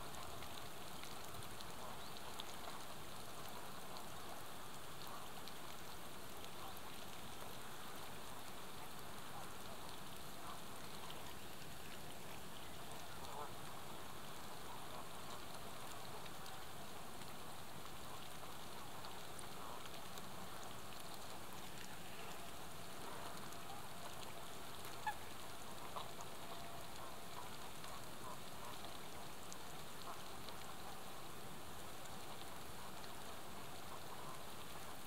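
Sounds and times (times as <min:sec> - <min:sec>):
steady outdoor hiss: 0:00.0 - 0:35.0.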